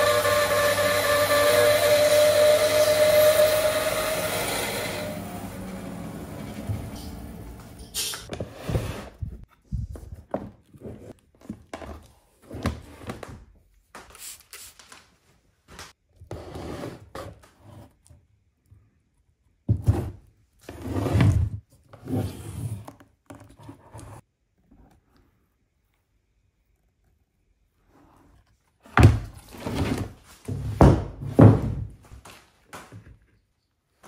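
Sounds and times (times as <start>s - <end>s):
bandsaw running: 0.0s - 7.9s.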